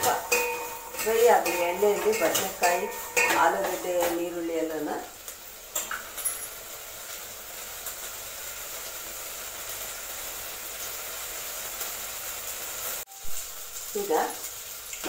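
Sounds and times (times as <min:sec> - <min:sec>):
pot knock: 0:00.0 - 0:04.2
vegetables sizzling in oil: 0:00.0 - 0:15.0.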